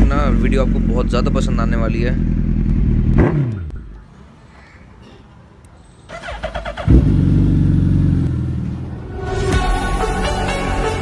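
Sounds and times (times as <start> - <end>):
motorcycle engine idling: 0.0 - 3.8
motorcycle engine revving down: 0.0 - 3.8, 6.1 - 9.0.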